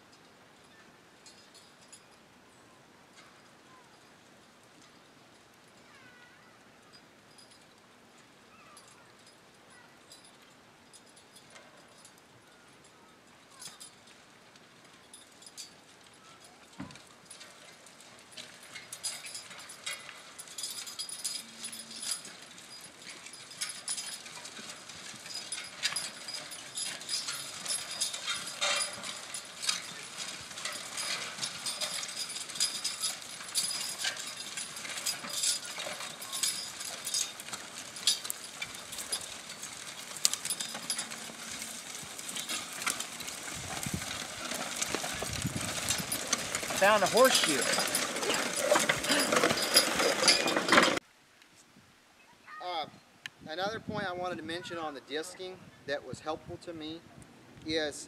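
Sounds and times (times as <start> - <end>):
harness and chains clinking: 0.0 - 51.0
hooves on soft ground: 0.0 - 57.7
harrow discs rattling and scraping: 14.0 - 51.0.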